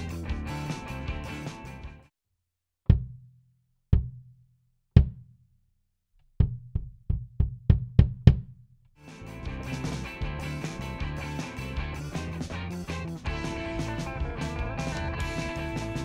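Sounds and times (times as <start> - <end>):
music: 0.0 - 2.1, 9.0 - 16.0
kick drum thuds: 2.9 - 3.2, 3.9 - 4.3, 5.0 - 5.3, 6.4 - 8.6.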